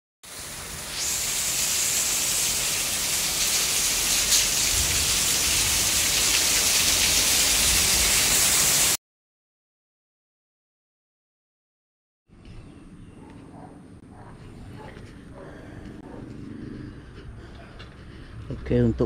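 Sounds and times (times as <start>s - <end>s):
heavy rain pouring: 0.3s - 9.0s.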